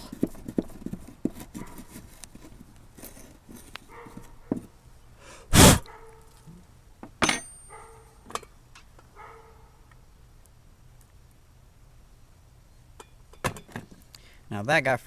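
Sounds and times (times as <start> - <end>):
metal tool scraping wood: 0.0 - 4.3
brief pitched sounds: 5.5 - 5.8.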